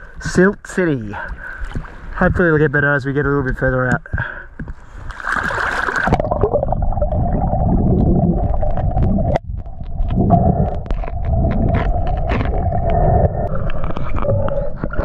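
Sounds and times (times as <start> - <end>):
muffled underwater rushing: 5.2 - 15.0
underwater clicks: 7.9 - 15.0.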